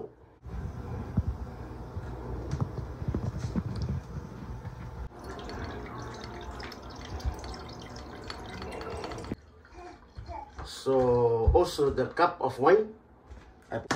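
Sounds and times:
pot boiling and bubbling: 5.0 - 10.5
wine trickling into a glass: 5.1 - 10.3.

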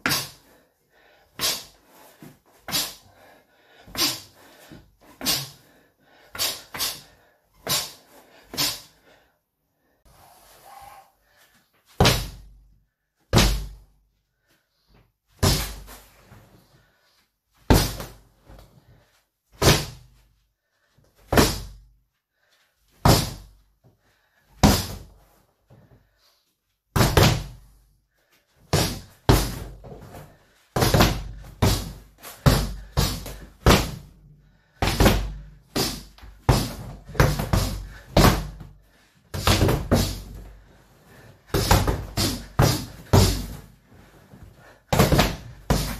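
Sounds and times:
punches thudding on heavy bag: 12.0 - 12.5, 13.3 - 13.8, 17.7 - 18.2, 19.6 - 20.1, 23.0 - 23.5, 24.6 - 25.1, 28.7 - 30.2, 30.8 - 34.1, 34.8 - 38.7, 39.3 - 40.5, 41.5 - 43.7, 44.9 - 45.9.

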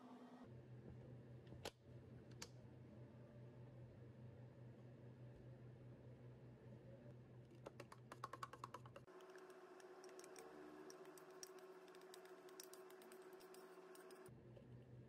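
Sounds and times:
small clicks and taps: 7.6 - 14.3.

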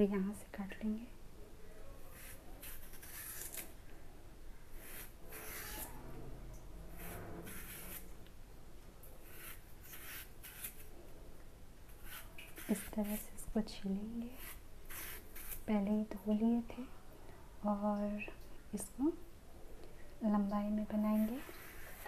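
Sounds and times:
knife scraping banana peel: 2.1 - 3.8, 4.8 - 6.0, 6.9 - 8.1, 9.2 - 10.9, 11.9 - 13.3, 14.2 - 15.7, 21.2 - 22.0.

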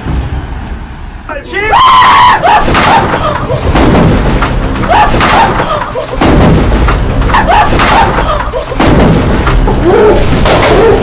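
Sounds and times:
people yelling: 1.3 - 3.6, 4.8 - 6.2, 7.3 - 8.8.

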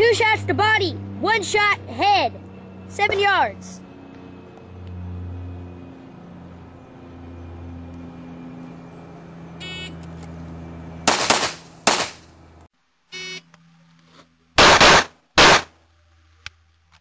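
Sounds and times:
pistol shots: 11.0 - 12.2, 14.6 - 15.8.

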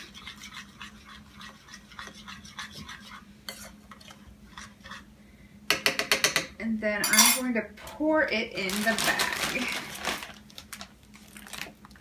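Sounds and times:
spoon scraping ceramic bowl: 0.0 - 5.1
spoon clinking against bowl: 7.0 - 7.4.

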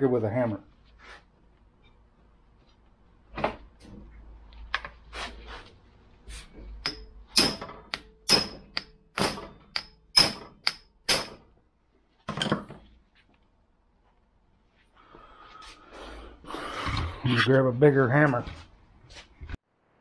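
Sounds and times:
hammer striking metal tool: 6.8 - 11.5
tool knocks and clatter: 12.2 - 12.9.

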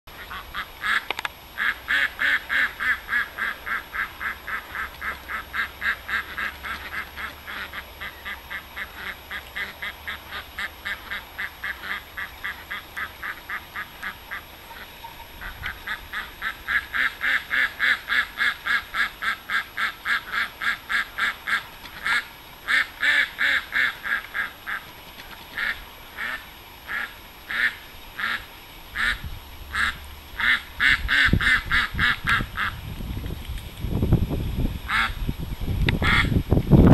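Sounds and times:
duck quacking: 0.1 - 24.9, 25.5 - 32.8, 34.9 - 35.2, 36.0 - 36.3.

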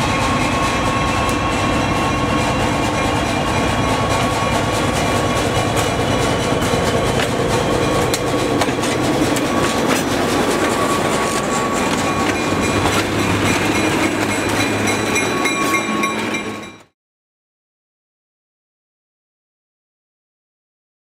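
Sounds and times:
wheels clicking over rail joints: 0.0 - 16.8
high ringing tones: 0.0 - 16.9
train wheels rumbling: 0.0 - 16.9
diesel locomotive engine drone: 0.0 - 17.0.

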